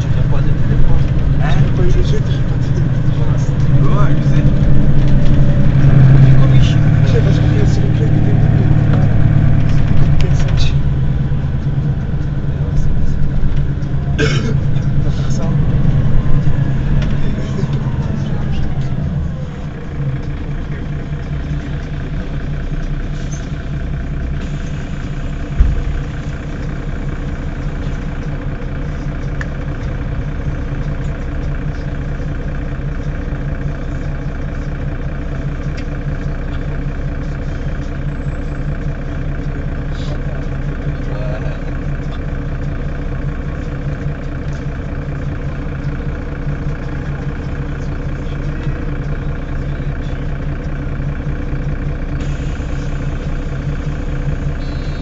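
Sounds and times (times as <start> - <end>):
bus engine idling: 0.0 - 55.0
loud thump: 25.6 - 26.0.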